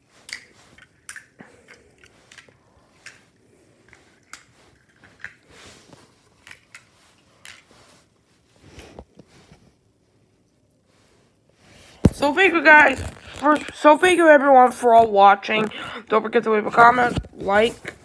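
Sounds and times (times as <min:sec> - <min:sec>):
toy cars clicking together: 0:00.2 - 0:03.2, 0:06.4 - 0:07.7
fabric rustling: 0:04.5 - 0:15.8, 0:16.7 - 0:18.0.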